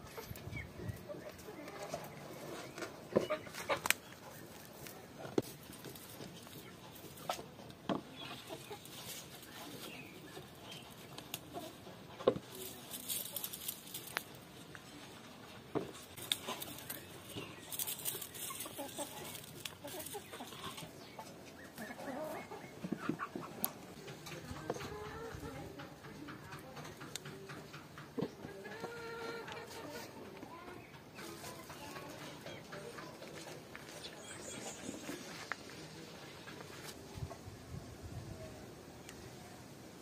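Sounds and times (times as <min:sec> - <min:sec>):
leaves rustling: 0:00.0 - 0:25.6
chickens clucking: 0:00.0 - 0:39.9.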